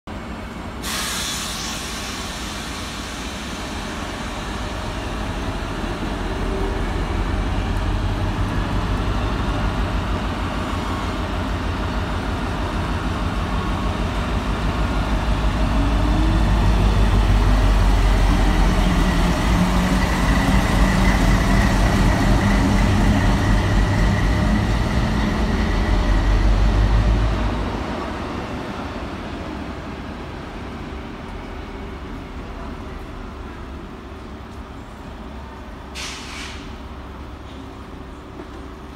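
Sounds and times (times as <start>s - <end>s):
diesel locomotive engine throbbing: 1.6s - 28.4s.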